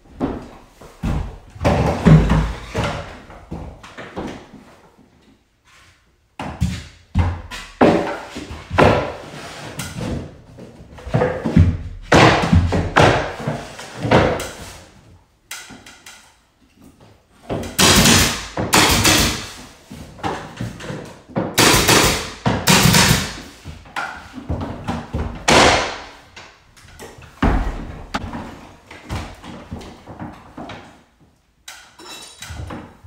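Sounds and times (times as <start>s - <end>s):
nail gun firing: 17.8s - 19.6s, 21.6s - 23.4s, 25.5s - 26.1s.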